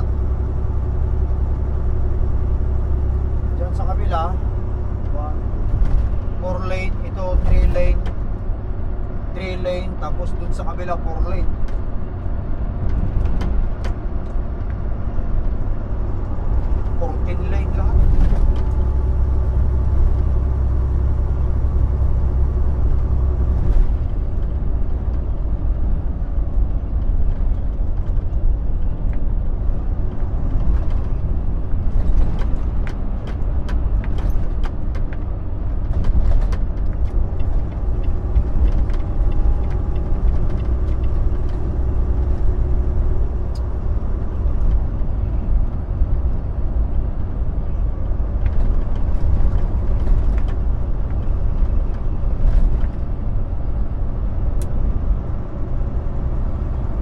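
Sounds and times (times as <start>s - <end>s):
truck engine and road noise: 0.0s - 57.0s.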